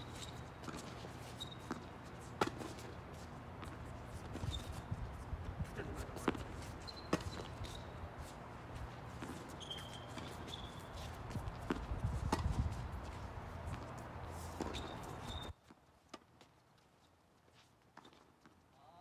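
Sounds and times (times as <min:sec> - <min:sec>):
short high squeaks: 0:00.0 - 0:01.9, 0:04.4 - 0:04.9, 0:06.8 - 0:08.0, 0:09.4 - 0:11.0, 0:14.6 - 0:15.6
tennis balls struck by rackets: 0:01.7 - 0:04.5, 0:05.8 - 0:07.8, 0:09.0 - 0:15.2.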